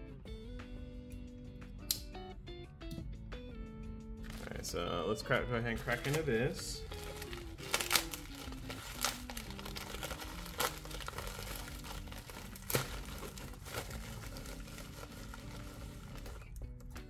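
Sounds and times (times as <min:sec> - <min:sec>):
faint background music: 0:00.0 - 0:17.0
packaging crinkling and tearing: 0:04.2 - 0:04.6, 0:05.8 - 0:16.6.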